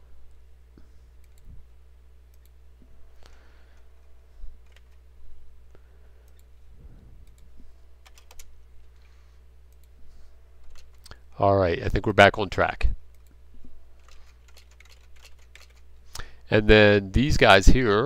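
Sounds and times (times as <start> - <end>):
low steady hum: 0.0 - 18.0
keyboard keystrokes: 7.2 - 8.5, 14.0 - 15.8.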